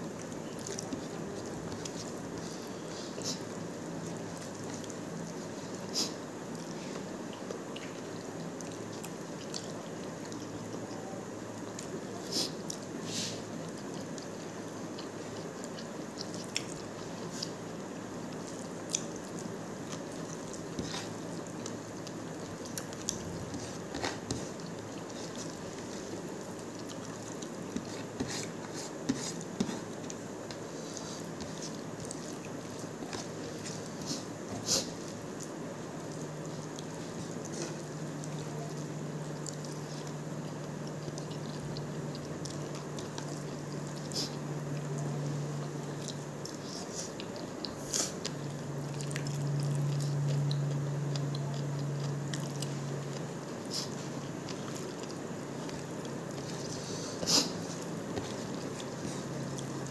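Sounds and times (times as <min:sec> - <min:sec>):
wet chewing and lip-smacking: 0:00.0 - 0:11.0, 0:12.6 - 0:59.9
low steady hum: 0:00.0 - 0:59.9
fingers squishing food: 0:13.7 - 0:59.9.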